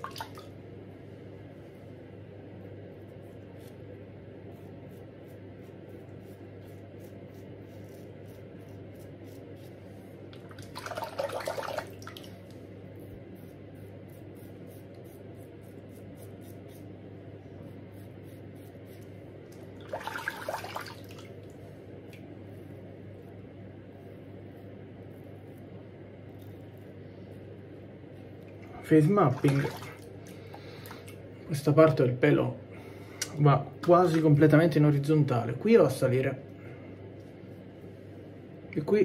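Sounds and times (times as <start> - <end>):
faint steady hum: 0.0 - 39.0
razor scraping stubble: 3.0 - 10.3, 12.9 - 17.0, 17.7 - 19.2.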